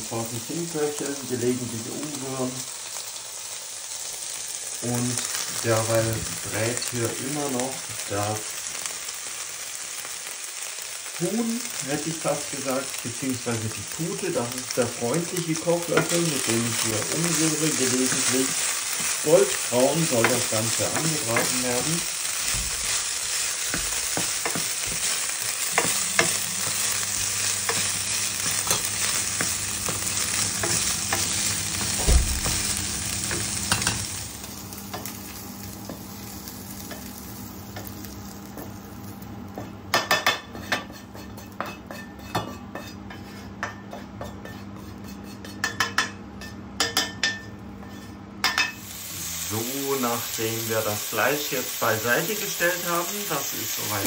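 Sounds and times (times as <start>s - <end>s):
meat sizzling in a frying pan: 0.0s - 54.0s
wooden spoon scraping a pan: 15.5s - 33.9s, 40.5s - 43.6s, 44.2s - 45.6s.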